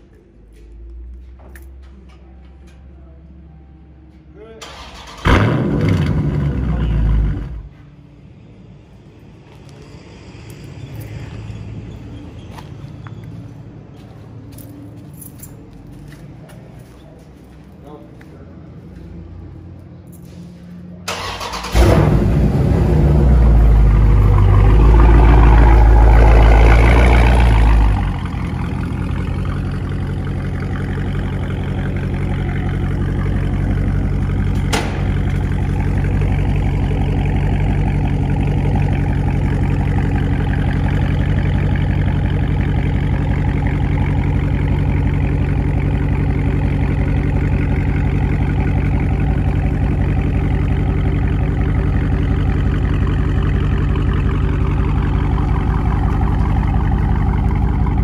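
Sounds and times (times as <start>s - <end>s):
car engine idling through exhaust: 21.7s - 58.0s.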